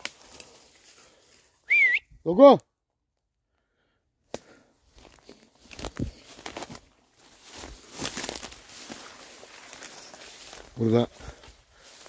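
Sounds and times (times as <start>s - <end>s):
pushing through brushy undergrowth: 0.0s - 1.6s, 4.3s - 12.0s
footsteps crunching through dry grass: 0.0s - 1.7s, 4.5s - 12.0s.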